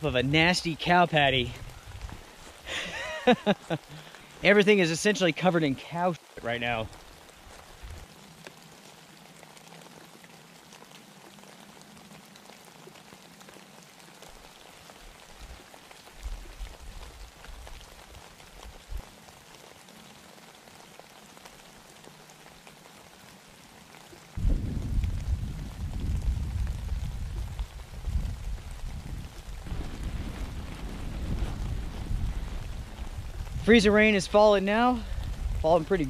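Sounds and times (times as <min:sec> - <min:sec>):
freezing rain pattering: 0:00.0 - 0:36.0
low rumble: 0:24.4 - 0:34.0.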